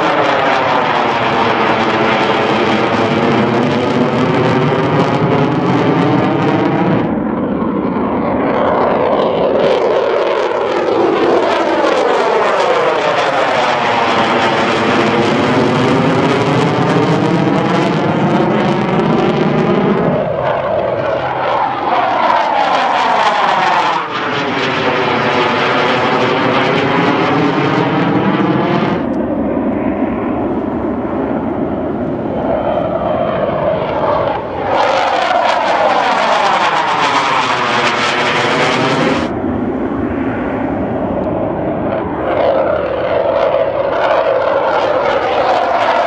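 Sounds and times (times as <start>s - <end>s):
jets passing overhead: 0.0s - 46.0s.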